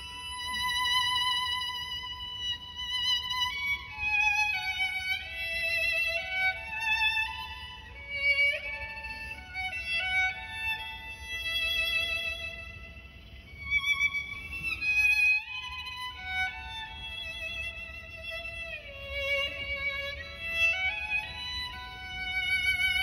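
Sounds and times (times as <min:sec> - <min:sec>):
bowed string instrument melody: 0:00.0 - 0:23.0.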